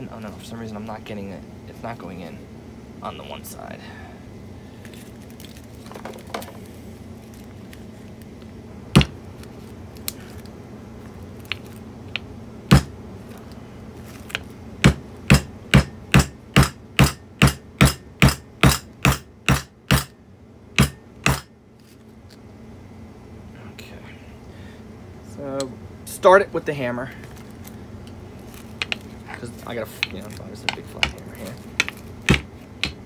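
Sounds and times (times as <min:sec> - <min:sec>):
hammer striking metal: 0:14.9 - 0:20.1, 0:20.8 - 0:21.5.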